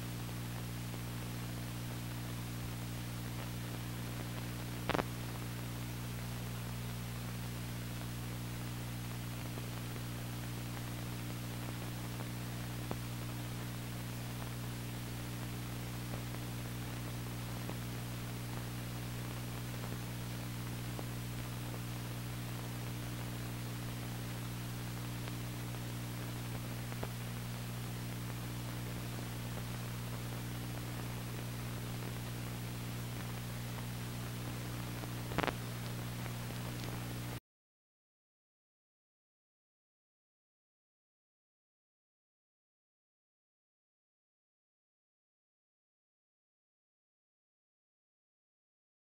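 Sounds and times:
low electrical hum: 0.0s - 37.4s
steady tape hiss: 0.0s - 37.4s.

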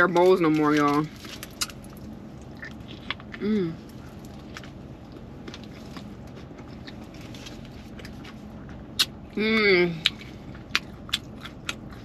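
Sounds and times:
person chewing food: 1.1s - 9.3s, 10.0s - 12.0s
person humming with full mouth: 3.4s - 3.8s.

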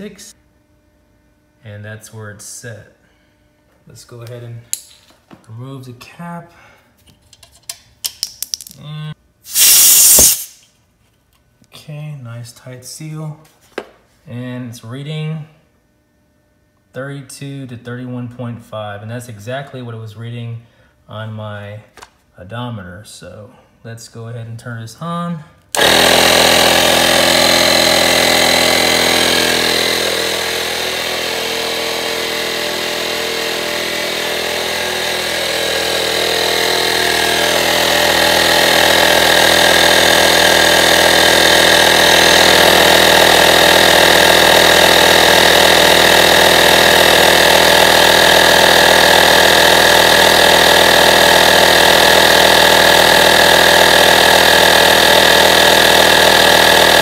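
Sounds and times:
electric tire compressor running: 9.4s - 10.7s, 25.7s - 57.0s.

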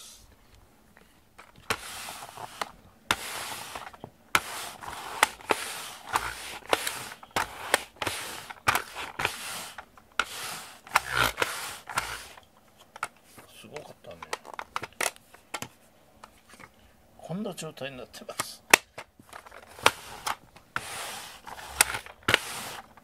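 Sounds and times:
lint roller scraping carpet: 1.4s - 12.4s, 19.2s - 23.0s.

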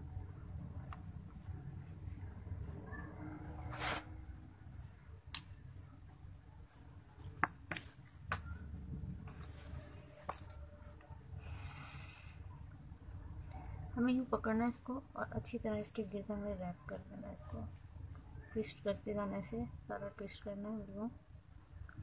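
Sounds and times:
low steady hum: 0.0s - 22.0s.

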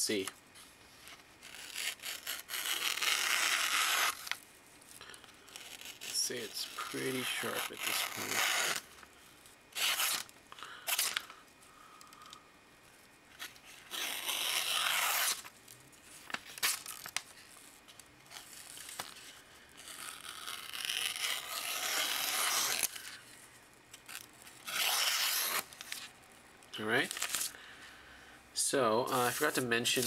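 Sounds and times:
knife slicing paper: 1.4s - 4.4s, 5.6s - 8.8s, 9.8s - 10.3s, 13.4s - 15.5s, 19.8s - 23.2s, 24.1s - 26.0s.

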